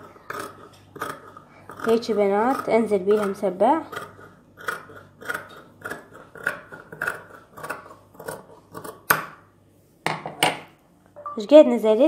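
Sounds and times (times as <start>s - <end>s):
shears snipping fabric: 0.0s - 9.3s.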